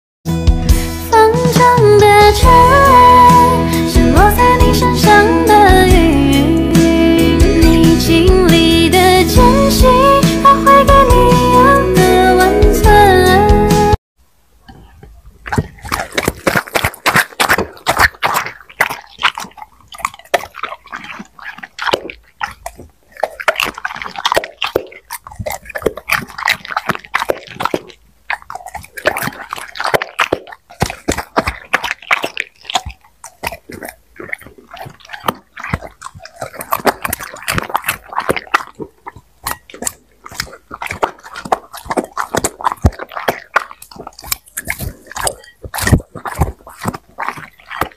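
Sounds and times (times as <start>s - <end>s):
dog chewing wetly: 14.6s - 47.9s.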